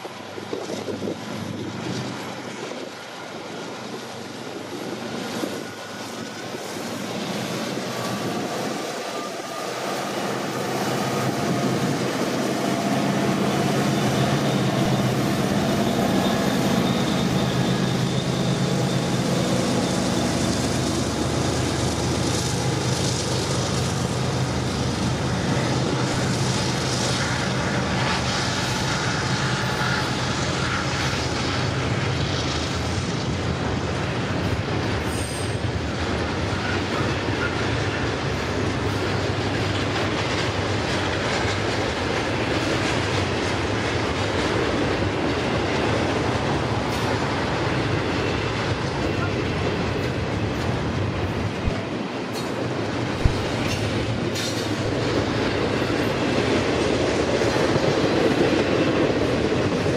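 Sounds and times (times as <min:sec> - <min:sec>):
wind on microphone: 0:00.0 - 0:05.9, 0:07.5 - 0:16.8, 0:44.6 - 0:59.9
diesel locomotive engine running: 0:00.0 - 0:59.9.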